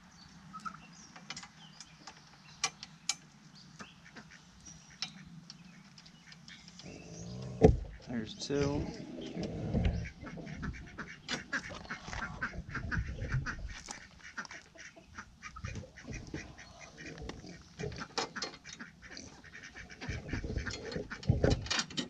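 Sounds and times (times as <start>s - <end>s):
ducks quacking: 3.8s - 5.3s, 7.6s - 21.8s.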